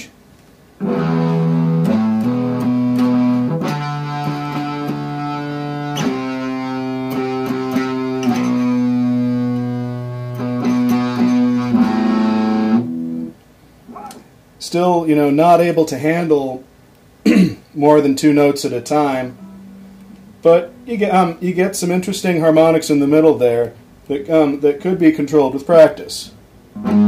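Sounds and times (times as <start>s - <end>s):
distorted electric guitar chords: 0.8s - 13.3s, 18.7s - 24.1s, 26.7s - 27.0s.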